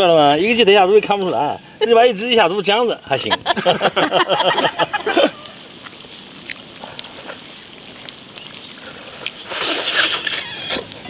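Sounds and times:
loud slurp from spoon: 0:09.5 - 0:10.9.

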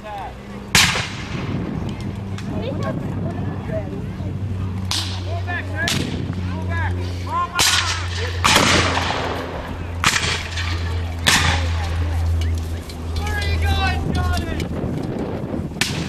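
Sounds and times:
musket shots echoing: 0:00.8 - 0:01.5, 0:07.6 - 0:12.0.

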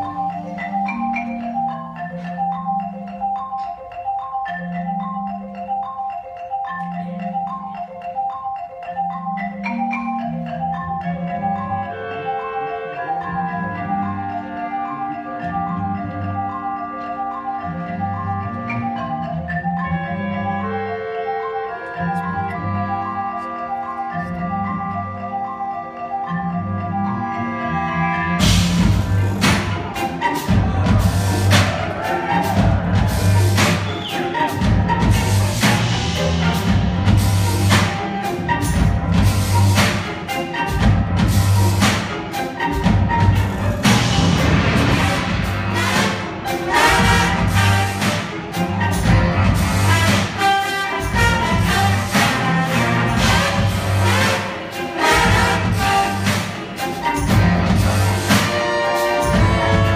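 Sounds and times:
jazz fusion band and orchestra: 0:00.0 - 0:59.9
pulsing bass line: 0:28.3 - 0:33.8
loud full-band hit: 0:44.2 - 0:46.0.

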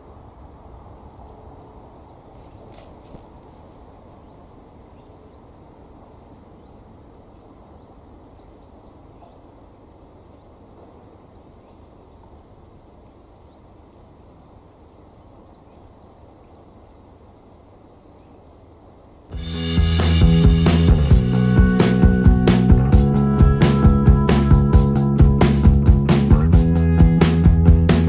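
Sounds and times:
small birds chirping: 0:00.8 - 0:19.1
low rumble: 0:19.4 - 0:28.0.

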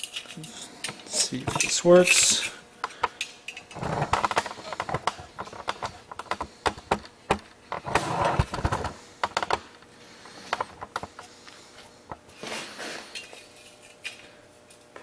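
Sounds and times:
metal plate scraping: 0:03.7 - 0:07.0, 0:07.6 - 0:11.2.

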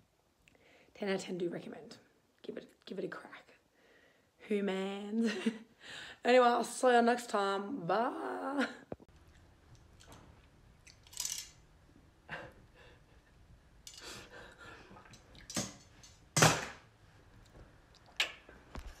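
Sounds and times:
metal tongs clicking: 0:10.8 - 0:11.6, 0:13.9 - 0:14.1.

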